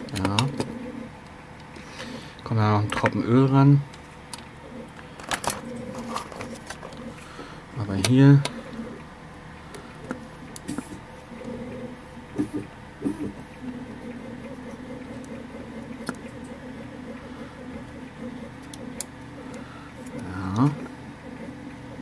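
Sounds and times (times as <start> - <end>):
scratching and clicking handling noises: 0.0 - 2.2, 3.9 - 7.3
steady low hum: 0.0 - 22.0.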